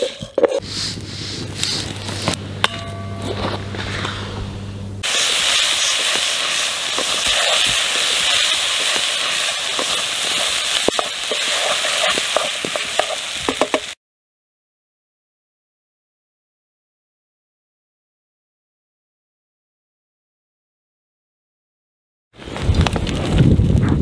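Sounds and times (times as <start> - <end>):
low steady hum: 0.2 - 10.6
rice sizzling in a pan: 5.0 - 14.0.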